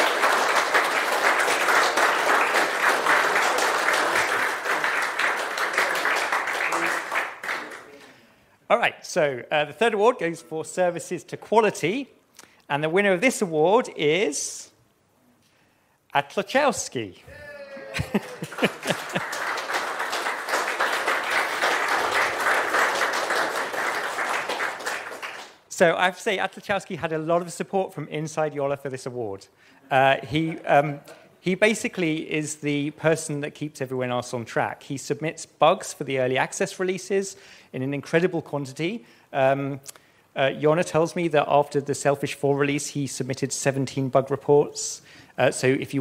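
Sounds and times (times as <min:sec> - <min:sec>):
audience applauding: 0:00.0 - 0:08.0, 0:17.8 - 0:25.6.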